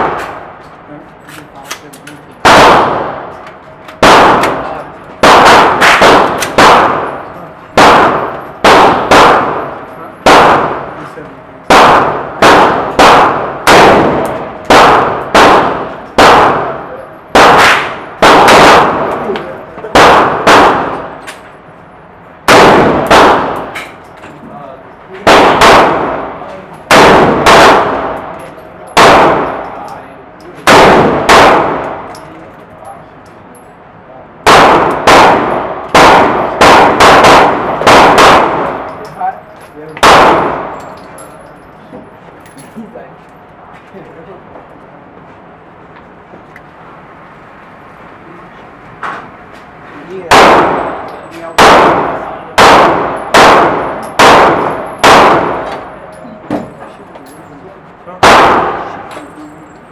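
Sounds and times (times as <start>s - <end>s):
ringing echo of gunshots: 0.0s - 0.6s, 2.4s - 3.4s, 4.0s - 11.0s, 11.7s - 21.3s, 22.4s - 24.0s, 25.2s - 30.0s, 30.6s - 32.1s, 34.4s - 39.1s, 40.0s - 40.9s, 50.2s - 56.1s, 58.1s - 59.4s
rifle shots indoors: 0.0s - 0.7s, 2.4s - 11.0s, 11.6s - 21.6s, 22.4s - 24.1s, 25.2s - 30.0s, 30.6s - 32.3s, 34.4s - 39.1s, 40.0s - 41.1s, 50.3s - 56.2s, 58.1s - 59.5s.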